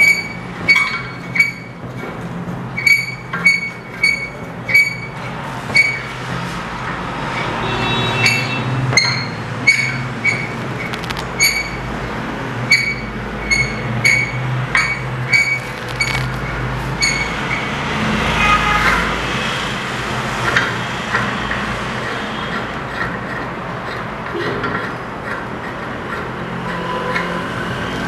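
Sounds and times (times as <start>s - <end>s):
metallic squeaks of screw rod: 0.0s - 1.8s, 2.7s - 6.2s, 7.4s - 11.9s, 12.7s - 17.7s, 22.1s - 27.6s
scraping handling noise: 9.7s - 11.8s, 14.8s - 17.4s.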